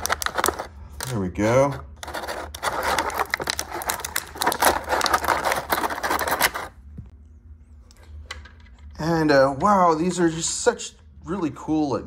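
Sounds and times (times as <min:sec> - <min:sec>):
plastic tray crinkling: 0:00.0 - 0:01.2, 0:02.0 - 0:06.8.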